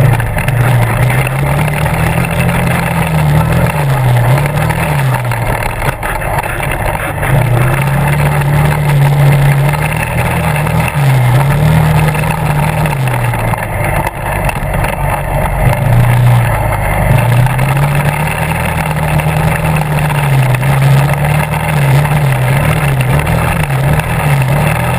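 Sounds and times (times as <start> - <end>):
quad bike engine revving: 0.0 - 24.9.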